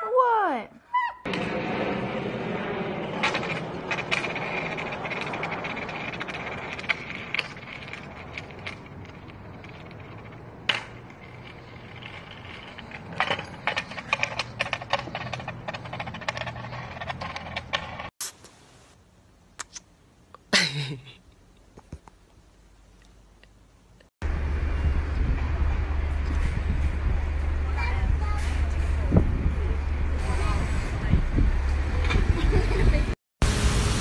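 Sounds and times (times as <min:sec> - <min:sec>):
skateboard wheels rolling on concrete: 0:01.3 - 0:18.1, 0:24.2 - 0:33.2.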